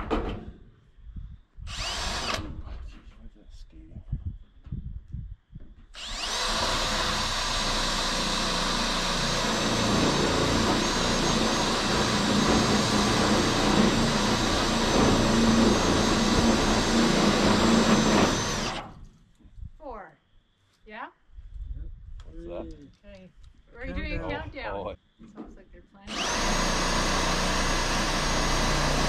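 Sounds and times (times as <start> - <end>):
power drill driving screw into metal: 1.7 - 2.6, 6.0 - 19.0, 26.1 - 29.0.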